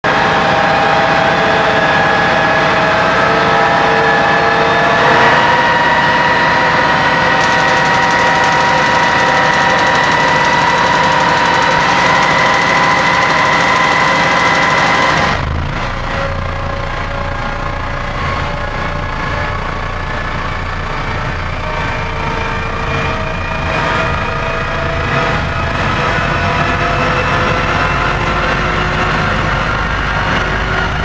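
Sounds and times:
ignitors zapping: 0:07.4 - 0:15.5
jet engine starter whine: 0:07.4 - 0:17.4.

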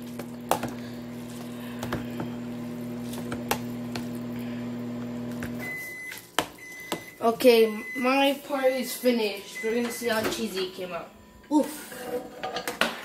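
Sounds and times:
microwave oven humming: 0:00.0 - 0:11.6
microwave beep: 0:03.7 - 0:11.5.

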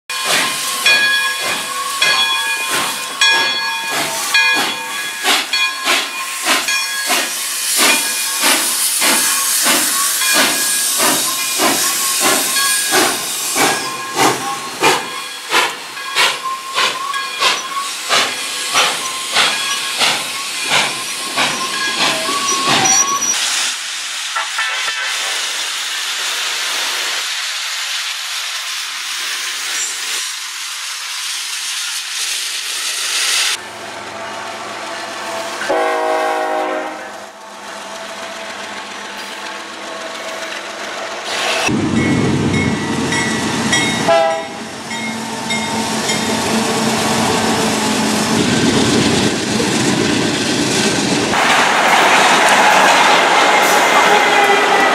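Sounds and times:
steam locomotive exhaust chuffs: 0:00.1 - 0:23.7
diesel freight train rumbling past: 0:00.1 - 0:54.9
steam whistle: 0:35.6 - 0:37.3, 0:44.0 - 0:44.6, 0:53.6 - 0:54.9.

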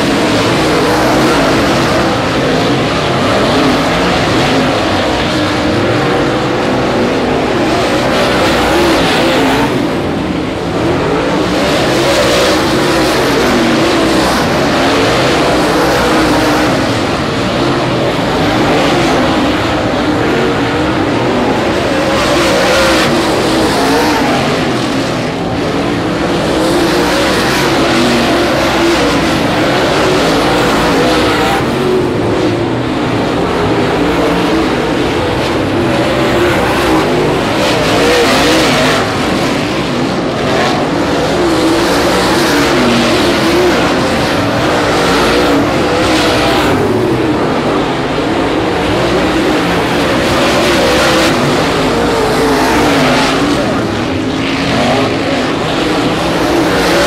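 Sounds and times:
cars passing by: 0:00.0 - 0:57.0
race car engines revving: 0:00.0 - 0:57.0.

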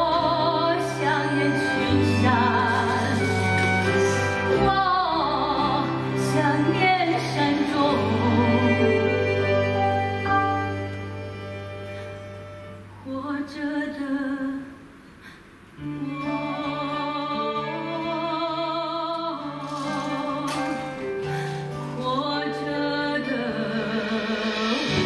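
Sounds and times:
woman singing a ballad: 0:00.0 - 0:10.8, 0:13.0 - 0:14.8, 0:15.8 - 0:25.0
instrumental accompaniment: 0:00.0 - 0:13.2, 0:15.7 - 0:25.0.

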